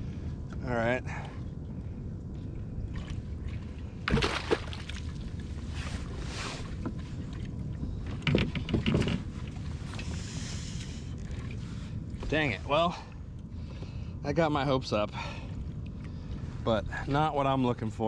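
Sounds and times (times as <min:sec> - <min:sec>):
wind and water noise: 0:00.0 - 0:18.0
fish thrashing and splashing: 0:04.1 - 0:05.4.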